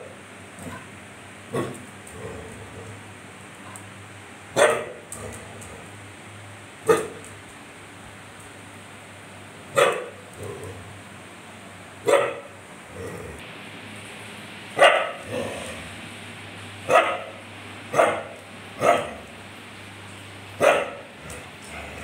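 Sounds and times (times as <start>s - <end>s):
dog barking: 4.6s - 5.1s, 6.8s - 7.2s, 9.7s - 10.2s, 12.0s - 12.6s, 14.8s - 15.3s, 16.9s - 19.2s, 20.6s - 21.1s.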